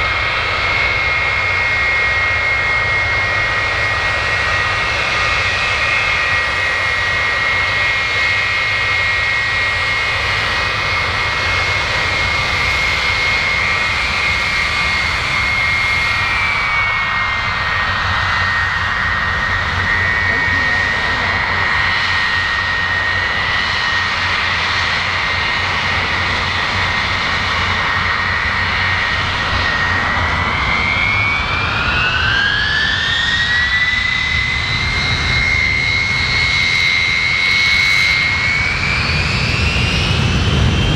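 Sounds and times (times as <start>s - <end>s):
jet engines whining: 0.0s - 40.9s
low engine rumble: 17.4s - 23.4s.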